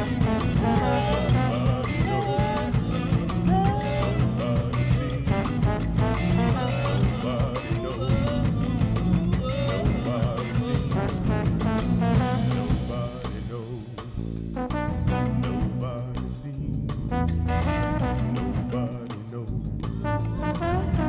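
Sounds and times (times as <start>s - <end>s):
person singing wordlessly: 0.0s - 11.5s, 12.1s - 14.4s, 18.1s - 19.6s
low bass line: 0.0s - 21.0s.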